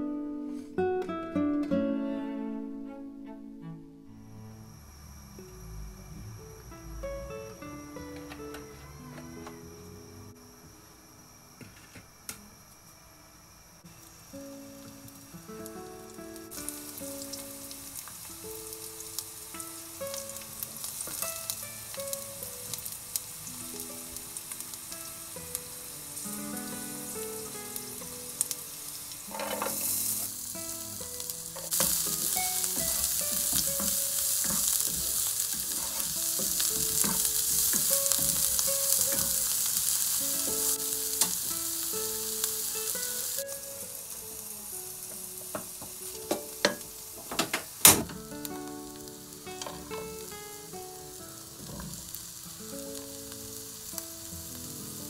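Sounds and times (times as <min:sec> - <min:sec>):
soft background music: 0:00.0 - 0:11.6, 0:13.8 - 0:55.0
food sizzling in hot oil: 0:13.5 - 0:55.0.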